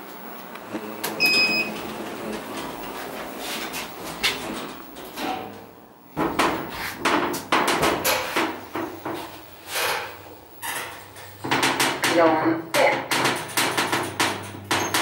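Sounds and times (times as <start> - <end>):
elevator hum: 0.0 - 11.6
elevator knocks and clunks: 4.0 - 15.0.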